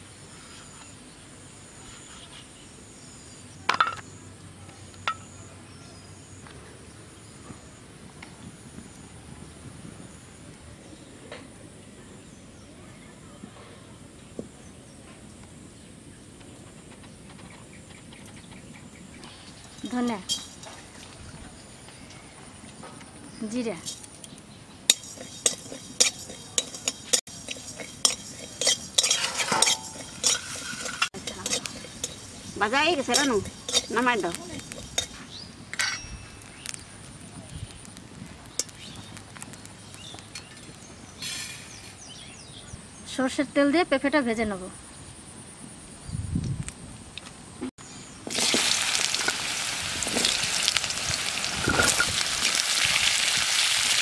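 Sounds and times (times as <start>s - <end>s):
insects chirring: 19.2s - 43.0s
metallic clinks on steel bowl: 24.9s - 35.2s, 35.8s - 36.4s
spatula scraping metal pan: 24.9s - 36.0s.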